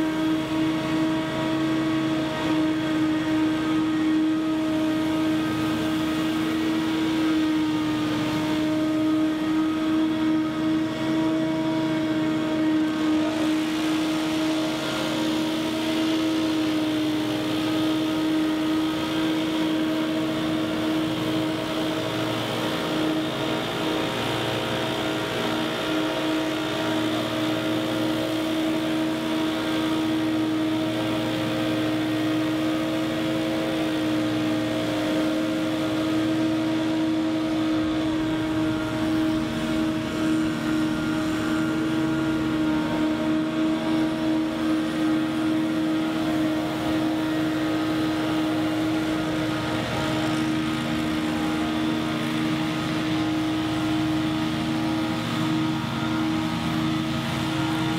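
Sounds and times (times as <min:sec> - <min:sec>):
backpack leaf blowers: 0:00.0 - 0:57.9
leaf blower whine: 0:00.0 - 0:57.9.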